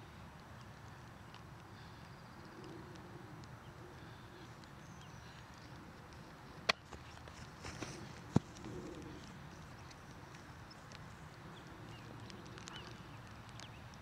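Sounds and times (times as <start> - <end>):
sharp crack: 6.1 - 9.2.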